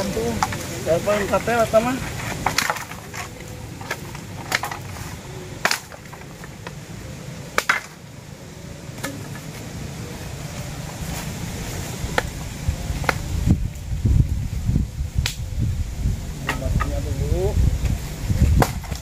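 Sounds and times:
dry branch snapping and knocking: 0:02.2 - 0:04.9, 0:05.6 - 0:06.8, 0:07.6 - 0:08.0, 0:09.0 - 0:09.7, 0:13.0 - 0:13.3, 0:15.2 - 0:15.4, 0:18.5 - 0:19.0.

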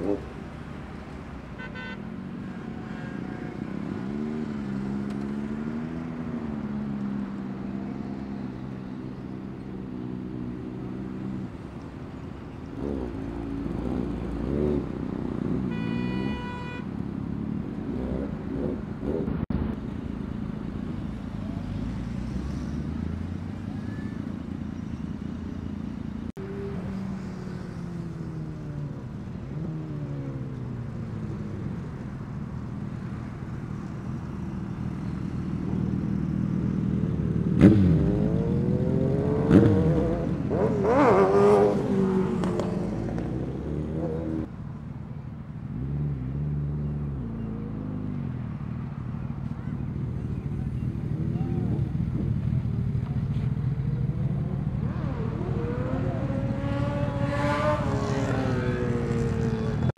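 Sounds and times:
motorcycle engines revving: 0:00.0 - 0:59.9
vehicle horn honking: 0:01.6 - 0:02.1, 0:15.7 - 0:16.9.

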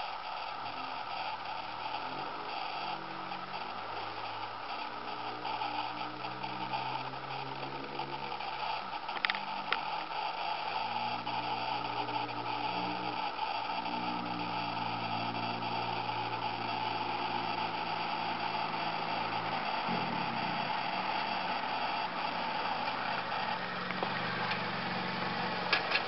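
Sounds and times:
steady hiss: 0:00.0 - 0:26.0
sharp clicks: 0:07.4 - 0:10.9
car exhaust note: 0:11.0 - 0:26.0.

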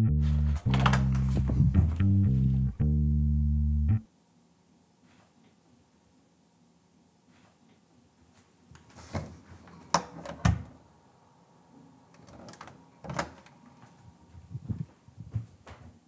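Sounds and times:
door handle and latch clicking: 0:00.7 - 0:01.3.

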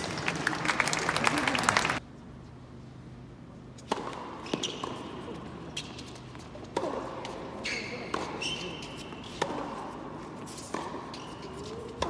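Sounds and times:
tennis shoes squeaking on court: 0:03.8 - 0:12.0
tennis ball strikes: 0:06.7 - 0:08.4, 0:09.2 - 0:10.0, 0:10.6 - 0:11.2.

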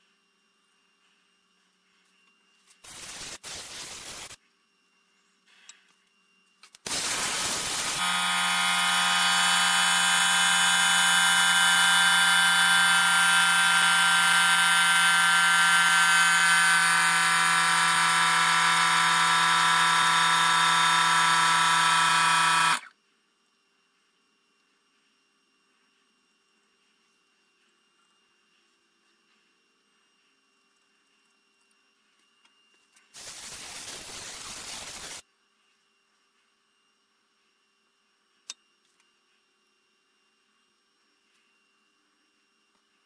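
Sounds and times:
power machine running: 0:06.9 - 0:22.9.

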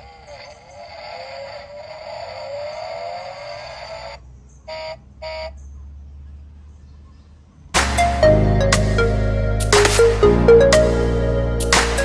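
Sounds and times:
loud electronic music: 0:07.8 - 0:12.0.

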